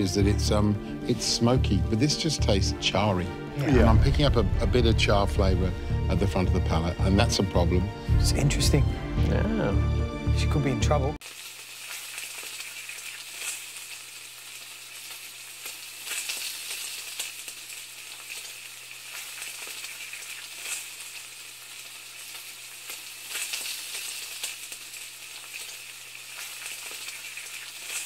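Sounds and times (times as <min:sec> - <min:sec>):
food sizzling in a hot pan: 0:11.2 - 0:28.0.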